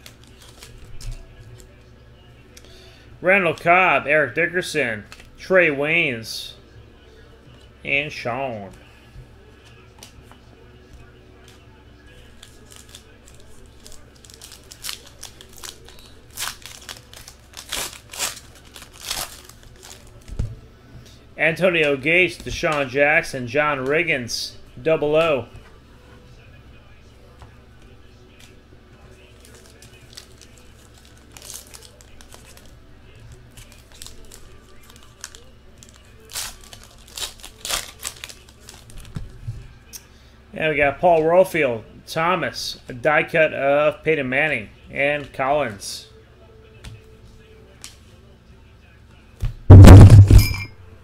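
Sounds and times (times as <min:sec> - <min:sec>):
foil wrapper crinkling and tearing: 0:00.0 - 0:01.8, 0:12.2 - 0:20.3, 0:29.2 - 0:39.2.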